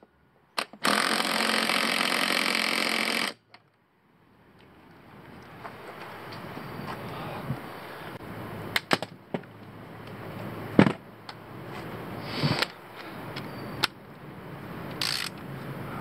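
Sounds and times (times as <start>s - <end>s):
faint background noise: 0.0s - 16.0s
hand tools clicking on metal: 14.9s - 15.4s.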